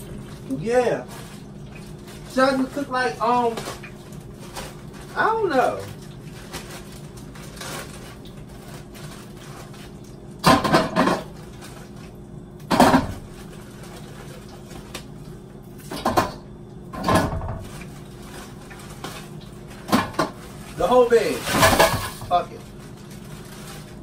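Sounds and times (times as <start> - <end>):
plastic bag rustling: 0.0 - 15.2, 17.3 - 24.0
knocking in metal stockpot: 10.4 - 11.3.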